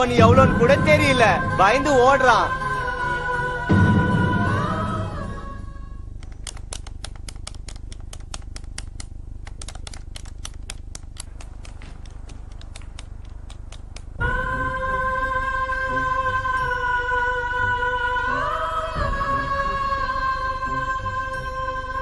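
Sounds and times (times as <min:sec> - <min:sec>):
music with long held notes: 0:00.0 - 0:06.1, 0:14.2 - 0:22.0
device buttons clicking: 0:06.2 - 0:14.2.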